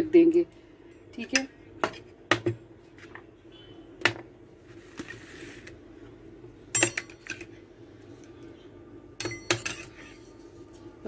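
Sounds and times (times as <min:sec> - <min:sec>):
faint steady hum: 0:00.0 - 0:11.0
metal spoon clinking bowl: 0:06.7 - 0:07.5, 0:09.2 - 0:10.4.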